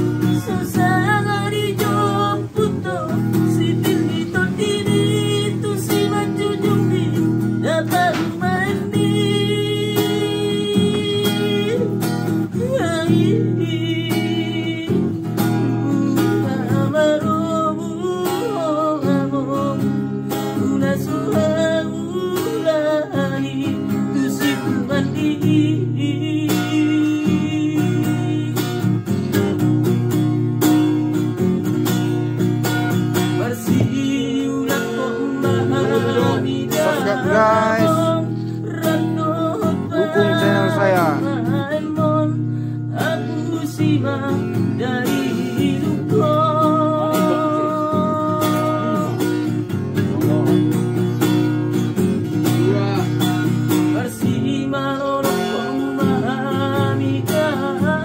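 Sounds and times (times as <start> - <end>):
man singing: 0.0 - 29.5, 33.1 - 58.0
strummed acoustic guitar: 0.0 - 58.0.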